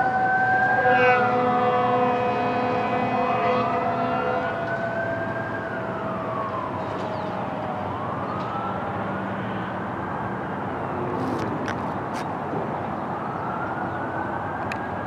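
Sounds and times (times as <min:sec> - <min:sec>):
fire engine siren wailing: 0:00.0 - 0:15.0
traffic noise: 0:00.0 - 0:15.0
horn blast: 0:00.6 - 0:04.6.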